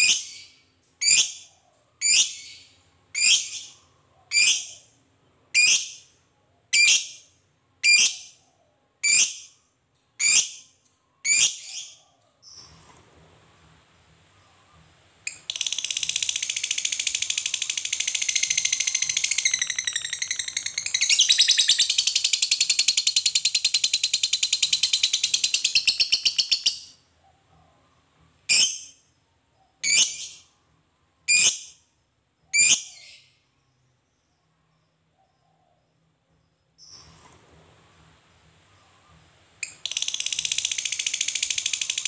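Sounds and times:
bird chattering trill: 15.3 - 26.9, 39.6 - 42.0.

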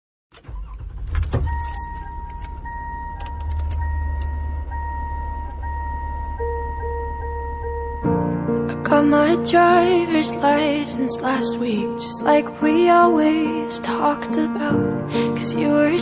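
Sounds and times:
low engine rumble: 0.4 - 11.1
pulsing chime: 1.2 - 8.6
electronic warning chime: 1.3 - 8.2.

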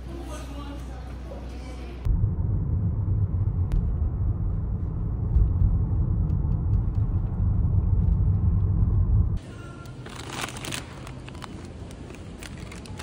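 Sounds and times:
car road rumble: 2.0 - 9.4.

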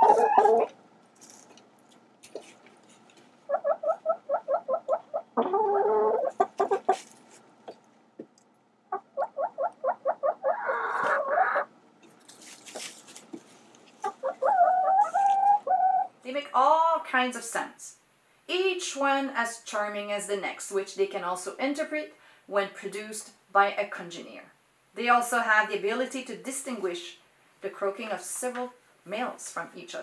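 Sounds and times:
hens cackling and squawking: 0.0 - 0.8, 3.5 - 7.0, 8.9 - 11.7, 14.0 - 16.1.

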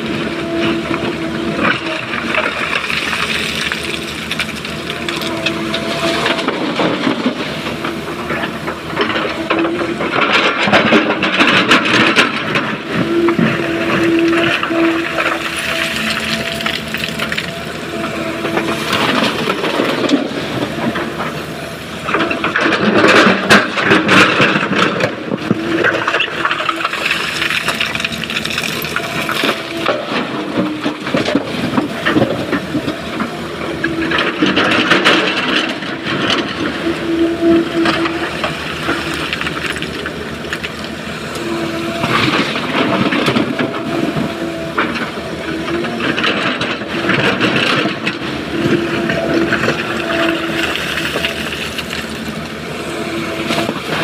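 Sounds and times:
excavator engine and hydraulics: 0.0 - 54.0
broken stone crunching and clattering: 25.8 - 32.9.

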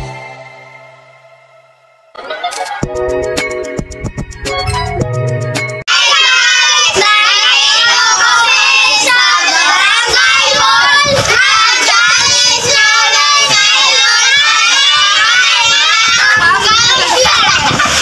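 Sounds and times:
children laughing and calling out: 5.9 - 18.0.

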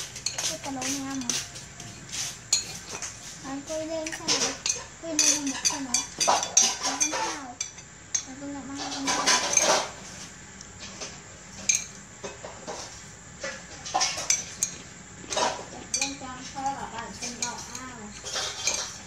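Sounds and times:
cutlery clinking on ceramic plates: 2.5 - 3.2, 4.0 - 10.0, 13.8 - 19.0.

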